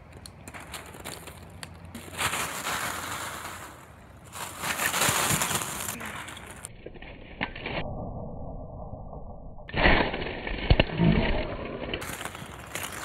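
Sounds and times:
plastic balls clattering: 12.0 - 13.0.

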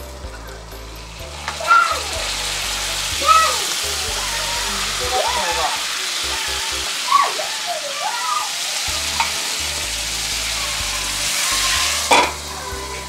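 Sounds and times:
patties sizzling in a frying pan: 0.6 - 13.0
lid clanking on pan: 12.1 - 12.4.

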